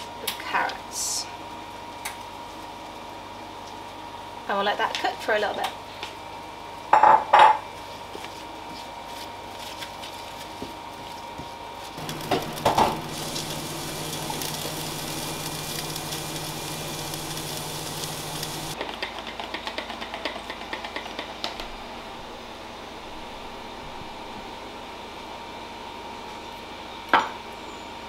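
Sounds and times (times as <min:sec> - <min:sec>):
oven fan humming: 0:00.0 - 0:18.8, 0:21.1 - 0:28.0
vegetables sizzling: 0:12.0 - 0:18.8.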